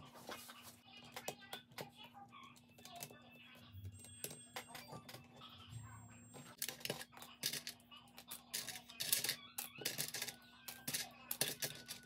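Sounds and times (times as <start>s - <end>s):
plastic bricks clicking and clattering: 6.6s - 12.0s.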